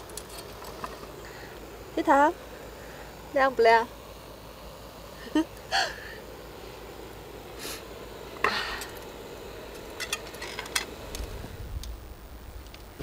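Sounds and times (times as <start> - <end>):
brief gas hiss: 7.6 - 7.9.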